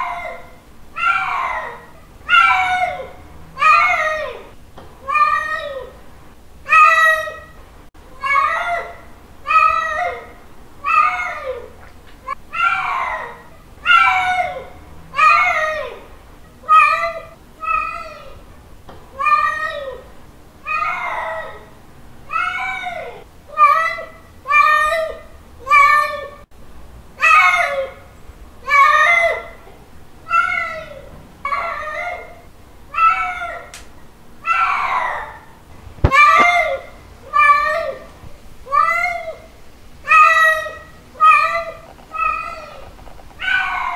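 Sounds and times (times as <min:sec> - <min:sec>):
cat yowling: 0:00.0 - 0:05.9, 0:10.8 - 0:11.7, 0:12.5 - 0:16.0, 0:16.6 - 0:18.3, 0:20.7 - 0:21.7, 0:30.3 - 0:33.7, 0:34.4 - 0:38.1, 0:38.7 - 0:43.9.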